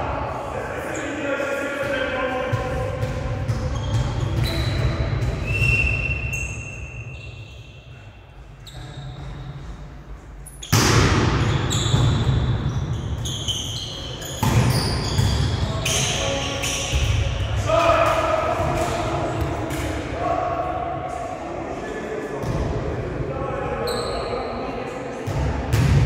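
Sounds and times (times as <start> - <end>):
shoe squeaks on court floor: 3.7 - 8.0, 8.6 - 9.5, 11.4 - 17.2, 23.8 - 24.6.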